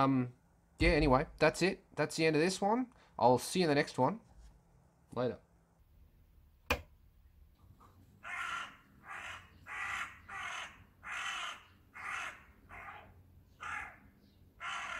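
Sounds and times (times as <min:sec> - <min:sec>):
crow cawing: 0:08.2 - 0:14.9.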